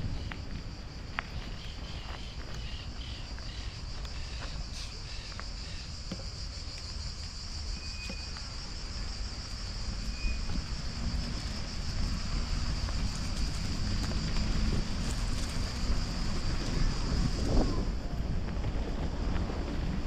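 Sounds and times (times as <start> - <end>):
high-pitched insect drone: 0.0 - 18.0.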